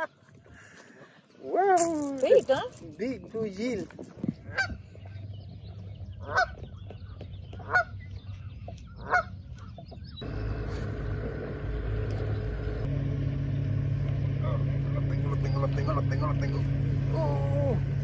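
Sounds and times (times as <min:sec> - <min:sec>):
waterbird honking: 0:04.4 - 0:05.3, 0:06.2 - 0:12.8, 0:14.4 - 0:18.0
steady low hum: 0:04.4 - 0:18.0.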